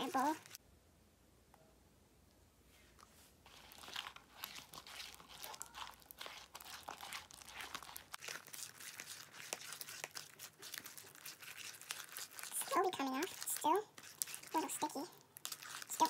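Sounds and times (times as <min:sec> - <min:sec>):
hands squishing sticky slime: 0:00.0 - 0:00.6, 0:03.5 - 0:16.0.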